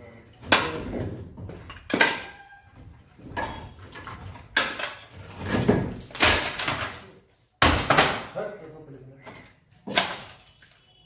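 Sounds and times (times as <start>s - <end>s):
knocks and clattering bangs: 0.4s - 7.0s.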